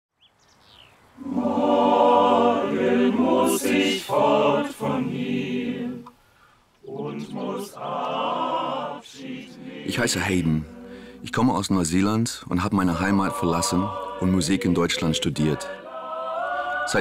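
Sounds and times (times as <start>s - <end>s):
voices singing a cappella: 1.2s - 6.2s, 6.8s - 17.0s
singers breathing: 6.1s - 6.8s, 10.6s - 11.3s, 16.3s - 16.9s.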